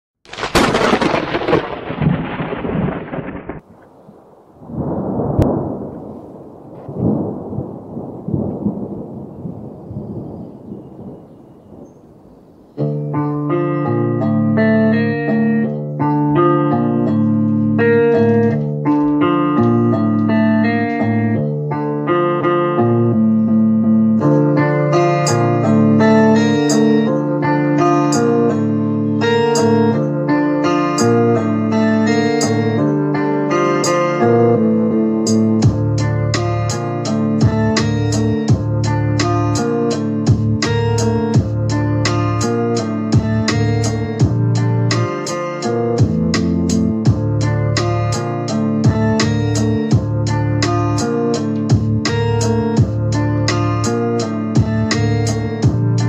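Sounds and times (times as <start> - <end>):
rumbling thunder: 0.3 - 12.5
instrumental music with held chords: 12.6 - 56.0.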